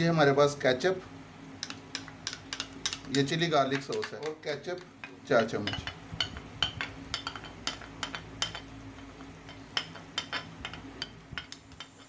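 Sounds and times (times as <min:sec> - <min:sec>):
spoon clinking against glass: 0:05.4 - 0:08.7.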